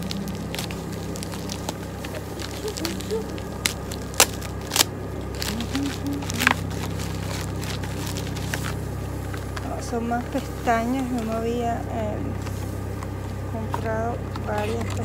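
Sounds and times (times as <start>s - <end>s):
plastic bag tearing and crinkling: 0.0s - 8.8s
low hum: 0.0s - 15.0s.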